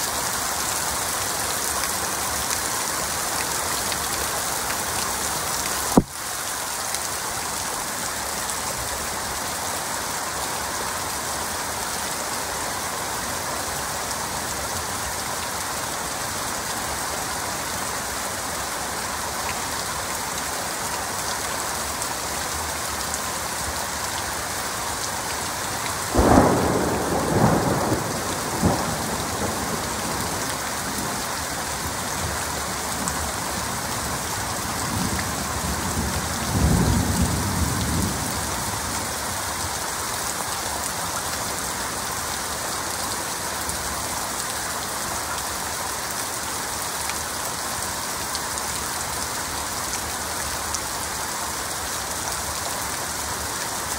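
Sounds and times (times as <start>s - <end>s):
heavy rain falling: 0.0s - 53.9s
thunder rumbling: 26.1s - 31.2s.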